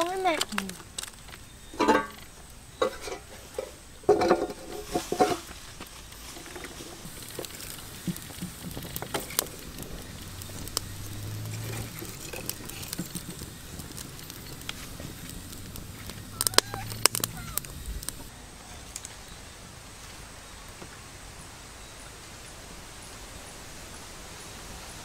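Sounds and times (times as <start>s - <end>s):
sharp snaps and pops: 0.0s - 2.4s, 5.8s - 18.3s
wood fire crackling: 0.0s - 22.6s.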